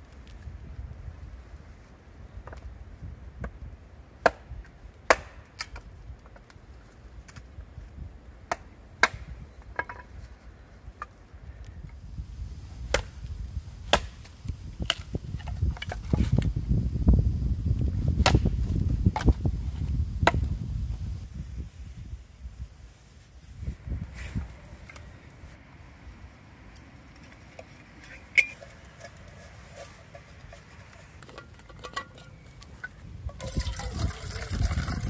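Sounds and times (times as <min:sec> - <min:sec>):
wood being chopped: 0:04.2 - 0:06.5, 0:08.5 - 0:10.0, 0:12.9 - 0:13.2, 0:13.9 - 0:16.1, 0:18.2 - 0:19.4, 0:20.2 - 0:20.5.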